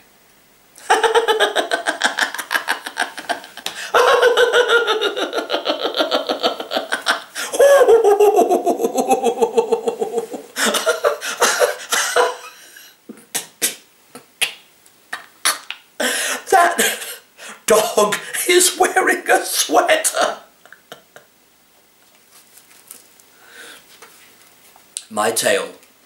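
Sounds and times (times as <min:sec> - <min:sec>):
man laughing hard: 0:00.8 - 0:14.3, 0:15.2 - 0:18.9, 0:19.6 - 0:21.3.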